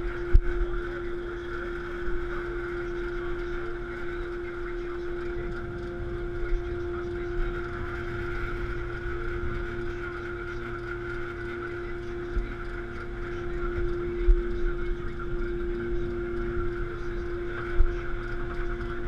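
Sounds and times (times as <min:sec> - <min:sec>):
boat engine running: 0:00.0 - 0:19.0.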